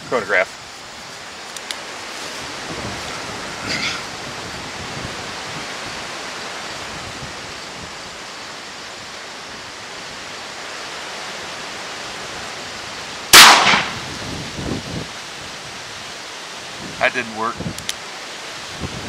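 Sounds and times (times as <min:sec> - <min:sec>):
outdoor air hiss: 0:00.0 - 0:19.0
revolver gunshot: 0:13.3 - 0:14.1.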